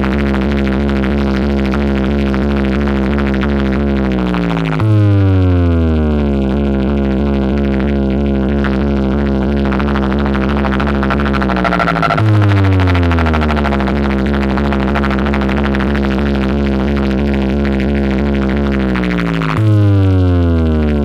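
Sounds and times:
steady bass drone: 0.0 - 21.0
electronic synth falling sweeps: 9.4 - 16.5.

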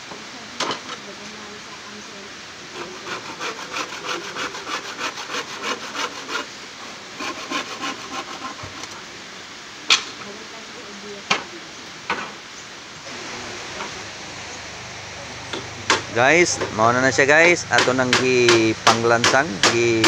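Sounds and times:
handsaw cutting wood: 2.7 - 6.5, 7.1 - 9.0, 15.5 - 20.0.

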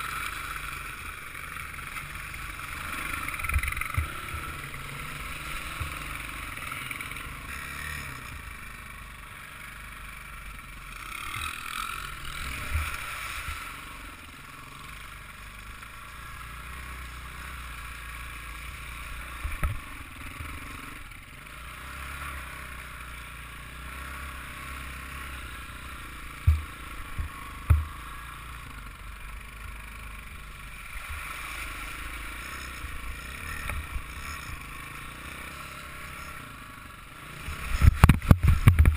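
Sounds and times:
motorbike engine running: 0.0 - 38.9
sharp low thumps: 26.4 - 27.9.

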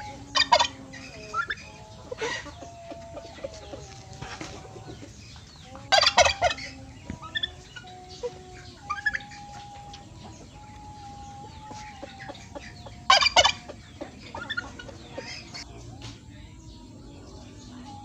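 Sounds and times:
chickens clucking: 0.0 - 18.0
chicken squawks: 11.6 - 15.6.

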